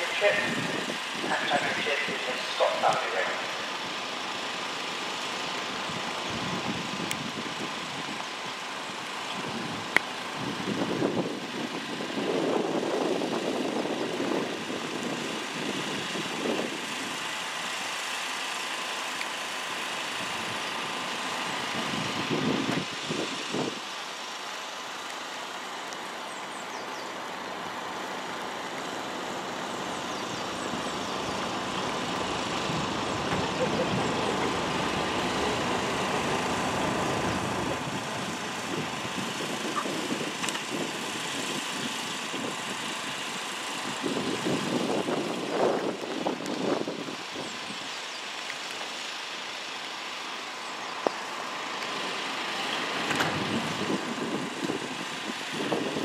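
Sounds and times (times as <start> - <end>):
muffled noise: 0.0 - 3.6
distant engines humming: 0.0 - 56.0.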